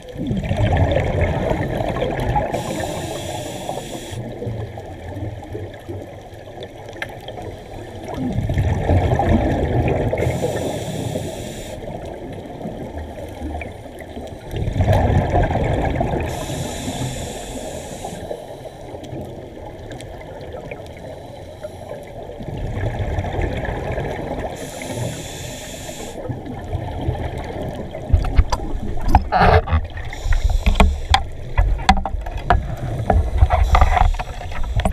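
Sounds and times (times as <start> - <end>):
scuba regulator breathing underwater: 2.4 - 4.3, 10.0 - 12.0, 16.0 - 19.0, 24.4 - 26.3, 29.9 - 31.2, 32.7 - 34.9
sharp clicks and knocks: 28.1 - 34.9.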